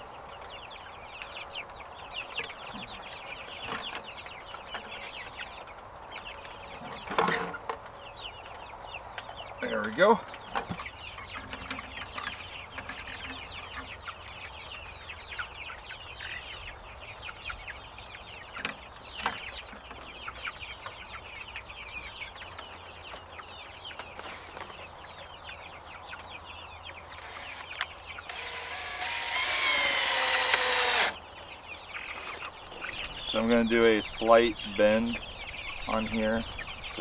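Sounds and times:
crickets chirping: 0.1s - 37.0s
cordless drill driving screw: 28.3s - 31.2s.

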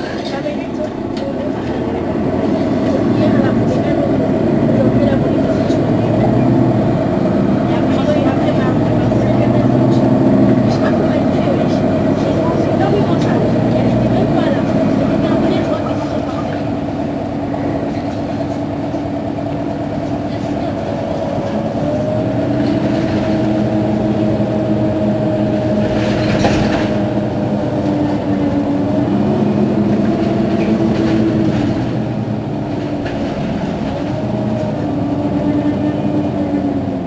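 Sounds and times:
bus engine idling: 0.0s - 37.0s.

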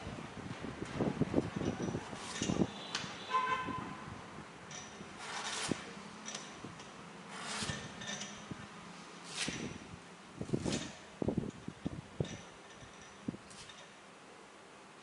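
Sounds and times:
blade scraping coconut husk: 5.2s - 6.0s, 7.3s - 8.0s, 9.0s - 9.7s.

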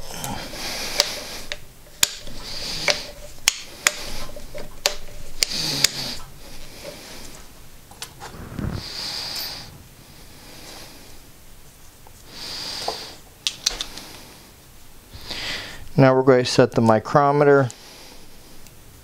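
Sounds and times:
low thump: 8.2s - 10.1s.

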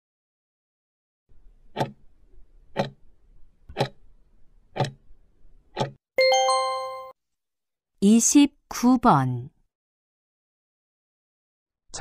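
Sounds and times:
clock ticking: 2.8s - 3.0s, 3.7s - 4.0s, 4.8s - 5.0s
bell-like chime: 6.2s - 7.1s.

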